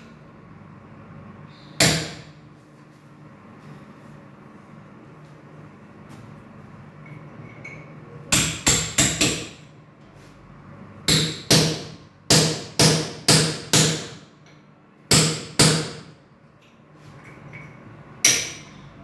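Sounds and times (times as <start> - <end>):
hammer striking wooden door: 11.1 - 14.2.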